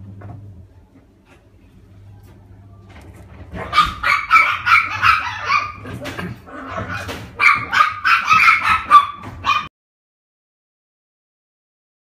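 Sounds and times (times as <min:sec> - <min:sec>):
puppy yapping: 0:03.5 - 0:09.7.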